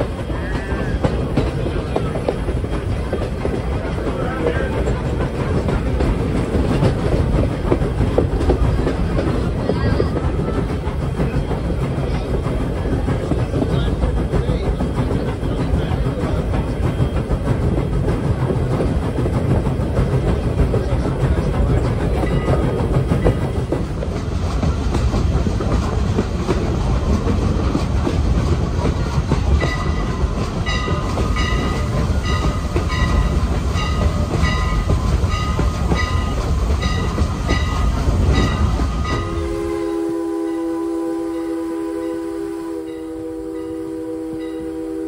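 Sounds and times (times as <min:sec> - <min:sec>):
train cars rumbling: 0:00.0 - 0:45.0
wheels clickety-clack on rails: 0:00.0 - 0:45.0
locomotive bell ringing: 0:22.0 - 0:23.5, 0:29.6 - 0:42.3, 0:42.9 - 0:44.8
steam whistle blowing: 0:39.2 - 0:45.0.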